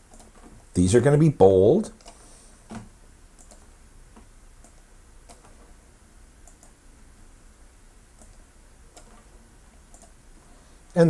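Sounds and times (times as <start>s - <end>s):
computer mouse clicks: 0.1s - 0.5s, 2.0s - 5.7s, 6.4s - 6.8s, 8.2s - 9.3s, 9.9s - 10.2s.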